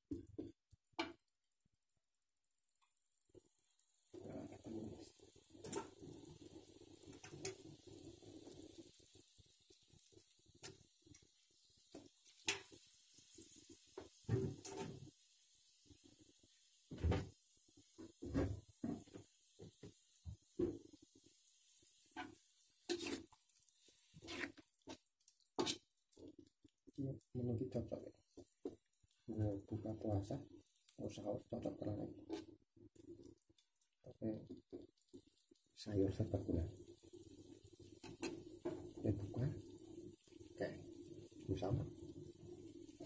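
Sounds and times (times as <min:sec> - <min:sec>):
food simmering in a wok: 0:00.0 - 0:43.0.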